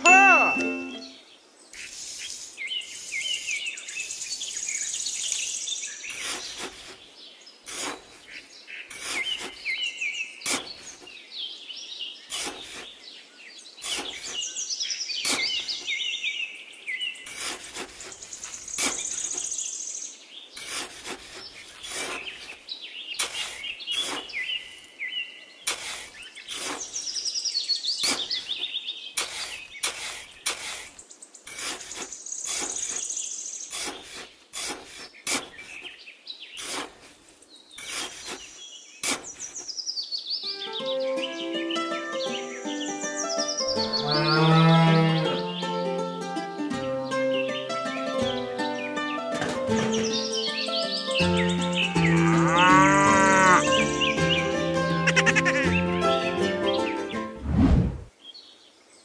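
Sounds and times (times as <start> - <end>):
birds chirping and singing: 0.0 - 57.4
trowel digging into sand: 6.1 - 7.0, 7.6 - 9.8, 10.4 - 11.1, 12.3 - 13.0, 13.8 - 14.5, 15.2 - 15.8, 17.3 - 19.5, 20.6 - 22.6, 23.2 - 24.8, 25.6 - 27.2, 28.0 - 36.0, 36.6 - 39.7.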